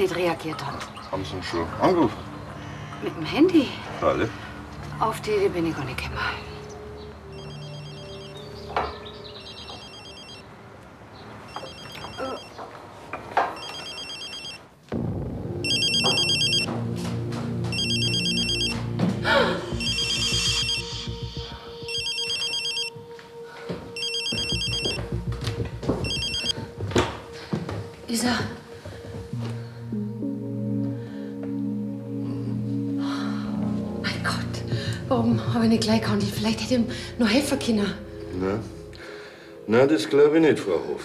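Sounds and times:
low background music: 0.0s - 11.1s, 14.9s - 41.0s
mobile phone ringtone: 7.3s - 10.5s, 11.5s - 12.6s, 13.6s - 14.7s, 15.6s - 16.7s, 17.7s - 23.1s, 24.0s - 25.3s, 26.0s - 26.6s.

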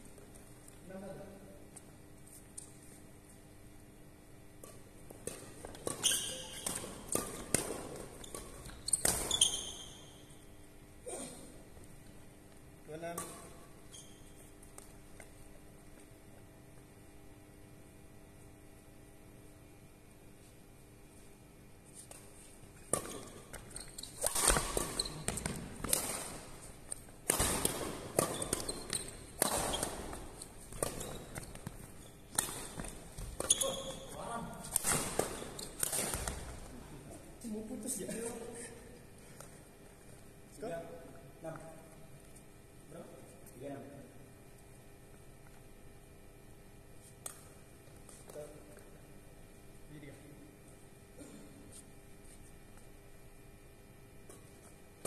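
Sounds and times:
rackets hitting shuttlecock: 4.6s - 10.3s, 22.8s - 36.7s
shoes squeaking on floor: 5.6s - 10.4s, 13.6s - 15.3s, 23.0s - 27.1s, 28.2s - 36.7s
footsteps and shuffling shoes: 46.9s - 49.0s.

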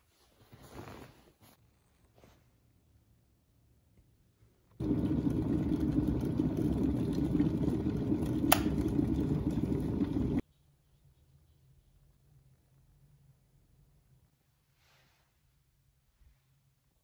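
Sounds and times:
kettle water boiling: 4.8s - 10.4s
kettle switch click: 8.4s - 8.9s.

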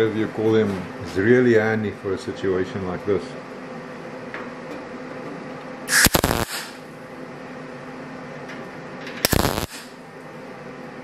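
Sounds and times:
welder tack welding sheet steel: 5.9s - 6.8s, 9.2s - 10.0s.

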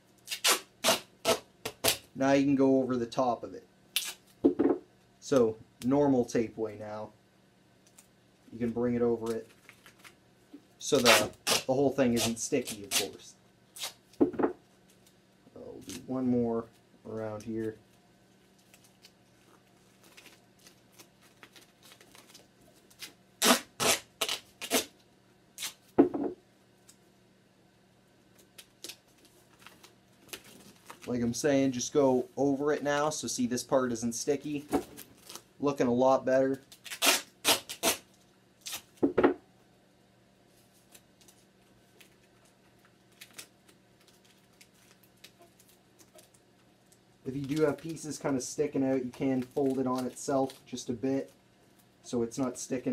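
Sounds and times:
duct tape rustling: 0.1s - 2.1s, 7.8s - 15.2s, 15.8s - 26.0s, 28.3s - 31.4s, 34.5s - 35.5s, 36.4s - 39.1s, 40.5s - 51.9s
duct tape ripping off roll: 0.2s - 2.1s, 3.9s - 4.4s, 10.9s - 14.2s, 22.9s - 25.0s, 25.6s - 25.9s, 36.6s - 39.0s.

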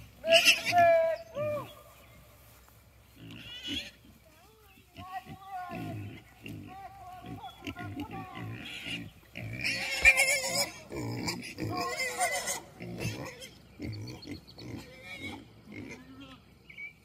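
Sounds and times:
pigs squealing: 0.2s - 1.8s, 3.2s - 4.0s, 5.0s - 16.4s
pigs grunting: 3.2s - 4.1s, 4.9s - 16.4s.

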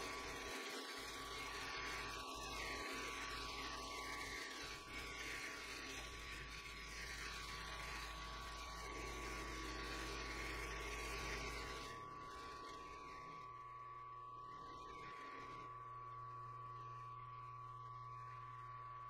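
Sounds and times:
milling machine motor hum and whine: 0.0s - 19.0s.

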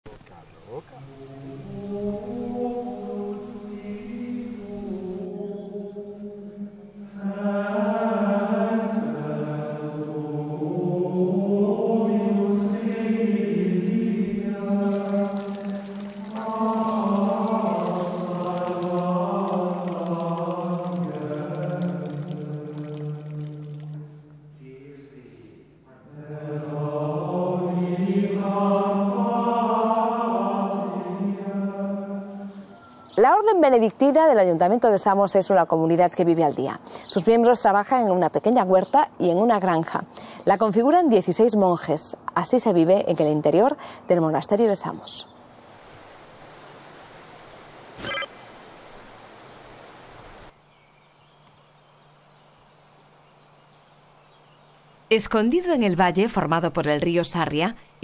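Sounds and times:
men chanting in unison: 7.1s - 22.8s, 24.6s - 32.8s.

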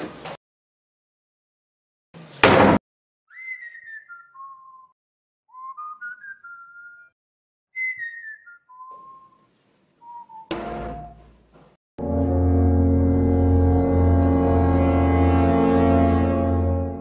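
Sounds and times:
person whistling a tune: 3.3s - 4.9s, 5.5s - 7.2s, 7.8s - 9.4s, 10.0s - 11.2s
deep sustained musical drone: 12.0s - 17.0s.

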